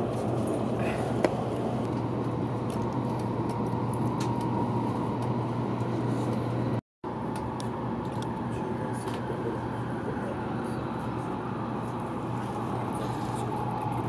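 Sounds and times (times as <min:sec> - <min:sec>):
train cabin rumble and hiss: 0:07.9 - 0:14.0.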